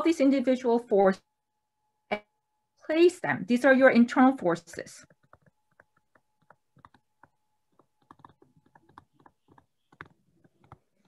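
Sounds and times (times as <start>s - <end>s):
faint steady tone: 0.0s - 11.0s.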